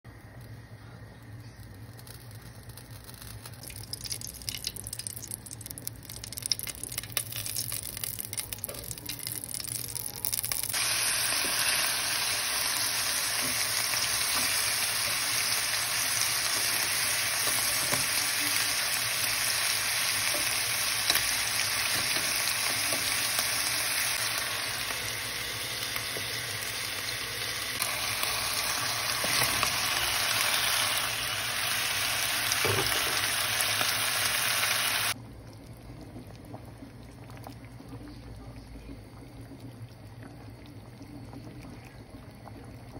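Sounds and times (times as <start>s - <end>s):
ghee crackling faintly: 0.1s - 10.9s
meat sizzling in hot ghee: 1.9s - 35.2s.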